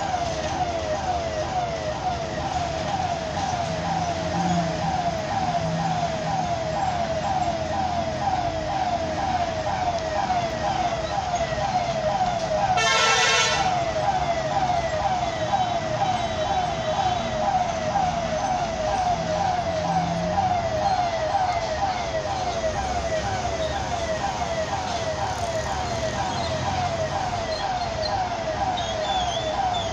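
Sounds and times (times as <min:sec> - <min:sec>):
electronic warning siren wailing: 0:00.0 - 0:29.9
heavy trucks running: 0:00.0 - 0:29.9
horn blast: 0:12.8 - 0:13.8.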